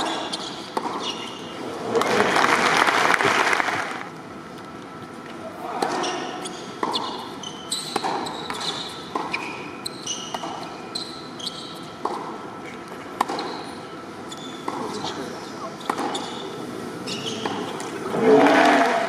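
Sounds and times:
sneakers squeaking on court: 0.0s - 1.5s, 6.0s - 11.9s, 13.3s - 15.2s, 15.8s - 17.8s
racket striking tennis ball: 7.9s - 9.5s
tennis ball bouncing: 7.9s - 9.5s, 12.0s - 12.3s.

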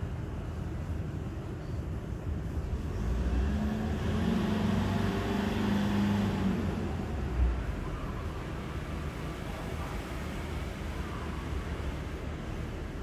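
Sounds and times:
vehicle engine passing by: 2.8s - 12.7s.

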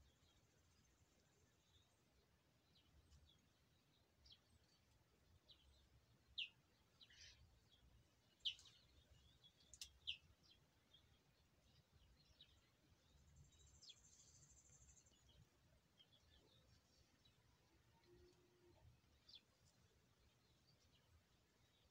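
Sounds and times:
faint bird chirps: 2.7s - 21.9s.

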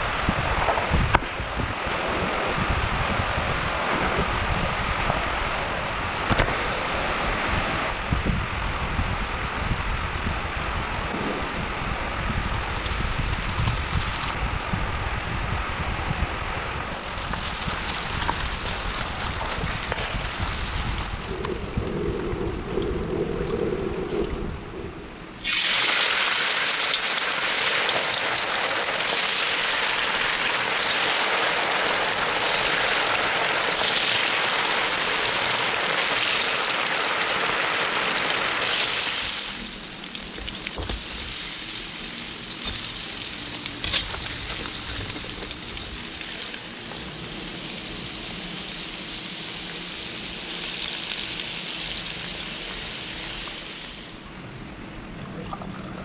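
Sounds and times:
ribs sizzling in hot oil: 25.4s - 54.1s.

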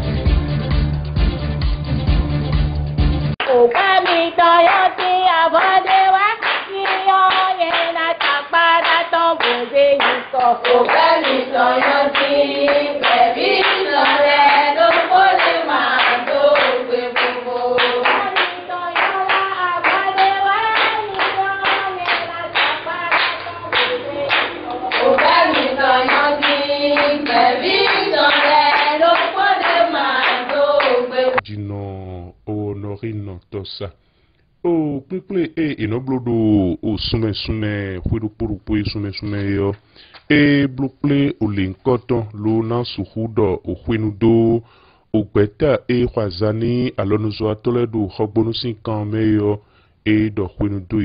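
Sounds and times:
hands clapping in rhythm: 3.3s - 31.4s
women singing together: 3.4s - 31.4s.

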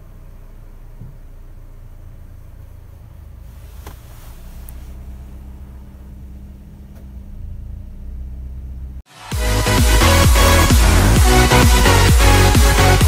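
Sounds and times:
car engine idling: 0.0s - 13.0s
electronic dance music: 9.1s - 13.0s.

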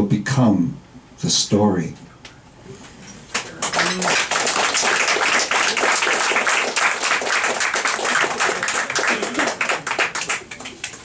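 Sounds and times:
small audience applauding: 3.3s - 11.0s.

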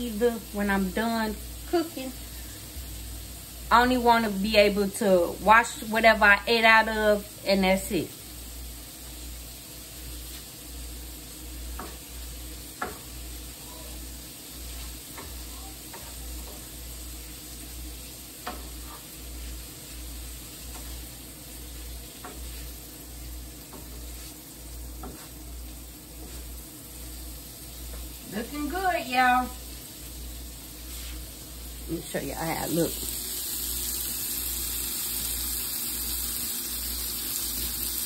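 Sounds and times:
food sizzling in a skillet: 0.0s - 38.0s
wooden spatula scraping pan: 18.4s - 20.0s, 21.7s - 22.9s, 23.7s - 25.5s, 26.2s - 26.6s.

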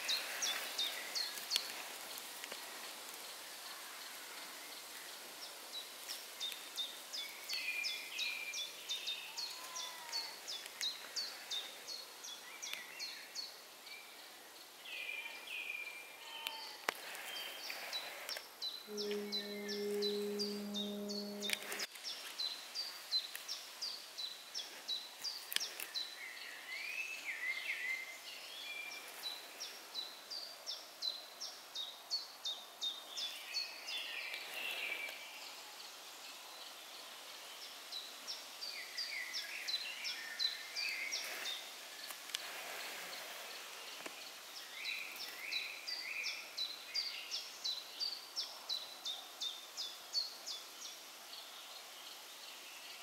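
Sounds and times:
lower bird chirping phrases: 17.3s - 21.9s
rapid high thin bird notes: 18.9s - 21.9s.

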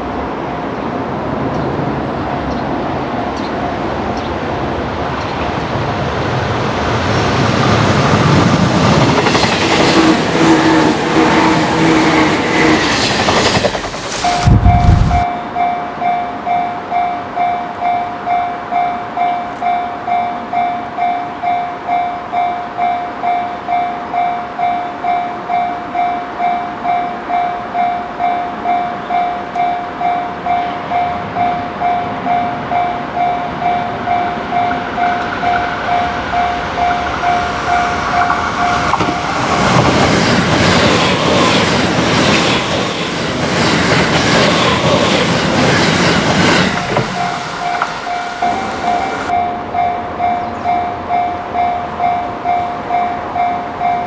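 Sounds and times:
electric train passing: 0.0s - 54.0s
level crossing warning bell: 14.2s - 39.5s, 46.9s - 54.0s.

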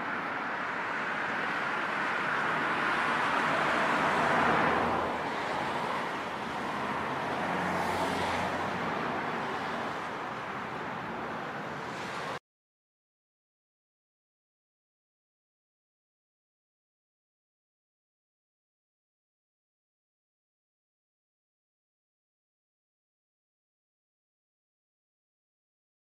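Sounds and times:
road traffic hiss: 0.0s - 12.4s
vehicle passing: 1.7s - 10.6s.

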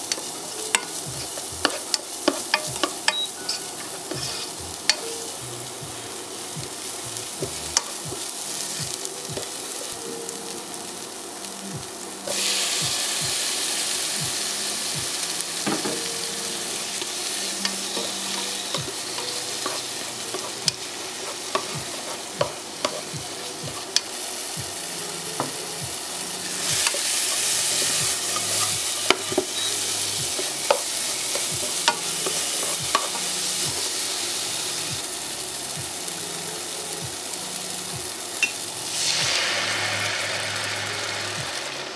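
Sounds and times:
food sizzling in a pot: 0.0s - 41.9s
spatula scraping a pot: 3.1s - 4.6s.

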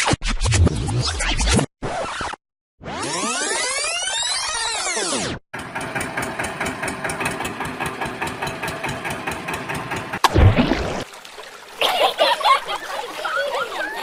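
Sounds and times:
toy tractor engine chugging: 5.6s - 10.2s
splash into water: 10.2s - 14.0s
voices chattering and laughing: 11.8s - 14.0s.

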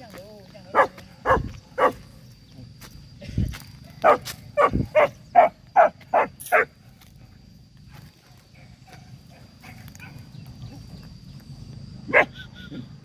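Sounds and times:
dog barking: 0.7s - 2.0s, 4.0s - 6.7s, 12.1s - 12.4s.

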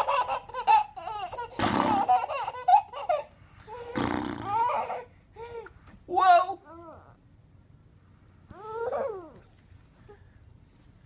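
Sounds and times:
baby giggling: 0.0s - 5.6s.

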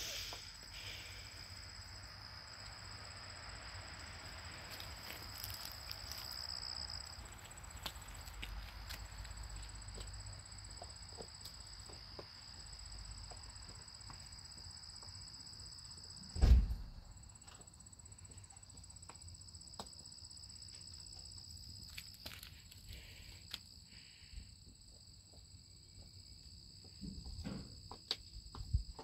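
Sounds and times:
insects droning: 0.0s - 29.0s
loud low thump: 16.4s - 17.1s.

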